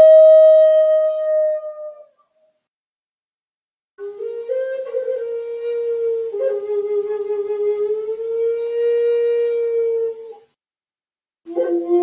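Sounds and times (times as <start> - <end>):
flute playing slow melody: 0.0 - 2.1, 4.0 - 10.5, 11.5 - 12.0.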